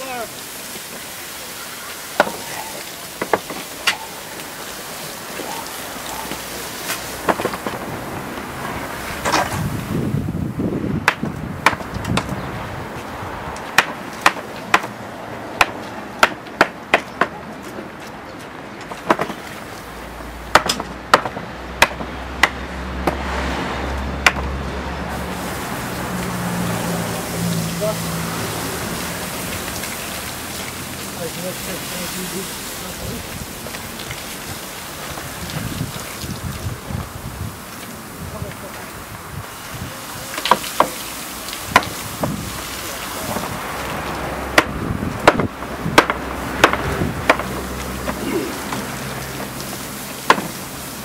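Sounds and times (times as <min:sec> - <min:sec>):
hot iron tyre hissing in water: 0:00.0 - 0:10.4, 0:25.1 - 0:51.0.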